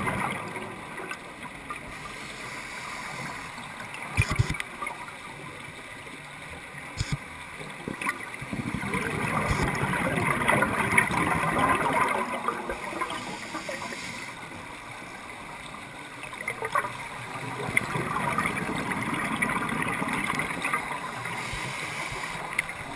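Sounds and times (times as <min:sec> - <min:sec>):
underwater air bubbling: 0:08.4 - 0:15.4, 0:16.4 - 0:22.9.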